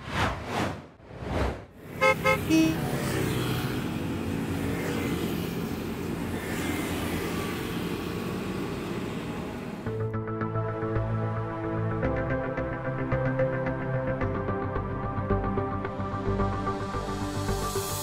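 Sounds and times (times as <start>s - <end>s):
city traffic noise: 1.7s - 10.9s
car horn toots: 2.0s - 2.8s.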